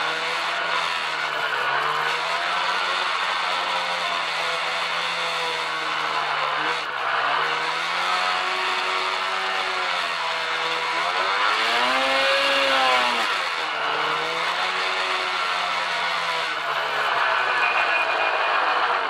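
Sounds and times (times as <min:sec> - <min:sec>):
snowmobile engine running: 0:00.0 - 0:19.0.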